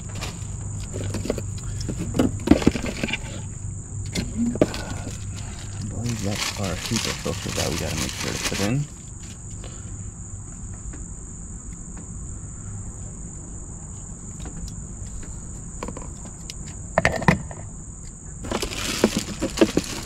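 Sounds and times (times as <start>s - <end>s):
plastic wrapping crinkling: 0.0s - 3.2s, 4.4s - 9.4s, 18.4s - 20.0s
insects chirring: 0.0s - 20.0s
packaging clicks: 4.6s - 8.9s, 18.4s - 20.0s.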